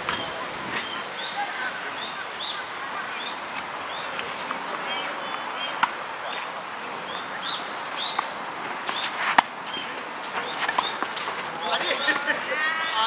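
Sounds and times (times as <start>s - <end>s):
birds chirping: 0.0s - 13.0s
tennis racket hitting ball: 8.1s - 9.5s, 10.2s - 11.5s.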